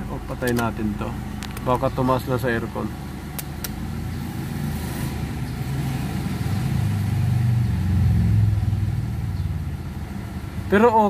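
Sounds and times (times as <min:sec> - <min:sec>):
car engine idling: 0:00.0 - 0:11.0.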